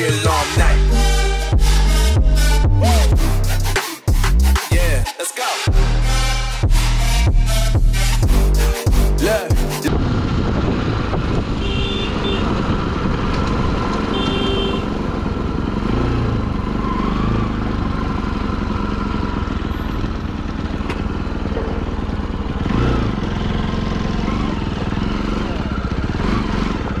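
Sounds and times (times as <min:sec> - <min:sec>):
motorcycle engine running: 0:09.2 - 0:27.0
wind and road noise: 0:09.9 - 0:27.0.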